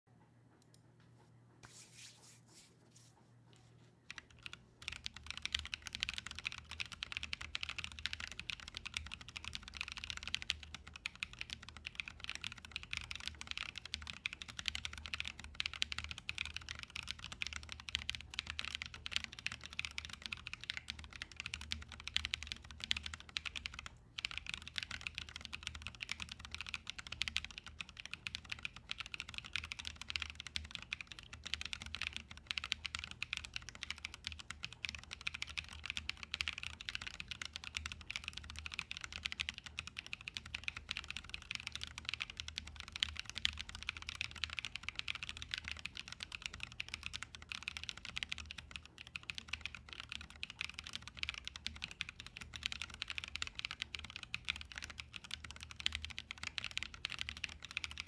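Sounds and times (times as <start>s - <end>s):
mechanical keyboard typing: 4.1s - 58.0s.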